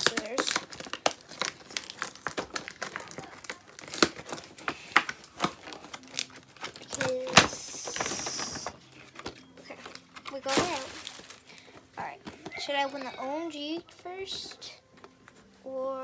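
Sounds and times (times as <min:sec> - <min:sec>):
packaging snap: 0:00.0 - 0:11.3
cardboard packaging crinkling: 0:00.0 - 0:12.7.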